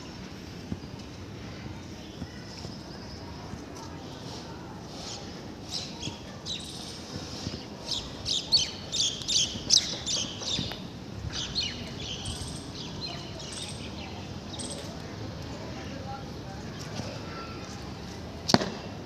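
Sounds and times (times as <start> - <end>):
steady low background noise: 0.0 - 19.0
small birds chirping: 5.0 - 15.0.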